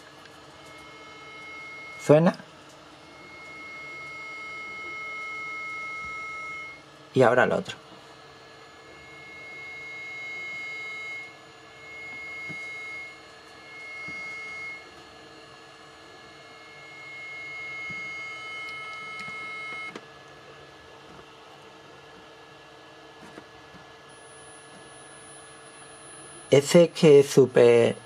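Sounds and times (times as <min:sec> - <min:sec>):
test tone from speaker: 0:00.6 - 0:02.4, 0:03.0 - 0:06.8, 0:08.9 - 0:14.9, 0:16.6 - 0:20.0, 0:24.1 - 0:28.0.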